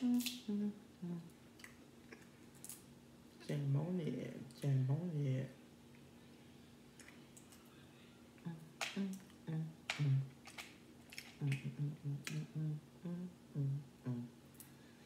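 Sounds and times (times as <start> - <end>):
short low hums: 0.0 - 1.3, 11.4 - 14.4
eating clicks and smacks: 7.0 - 7.6, 8.8 - 12.5.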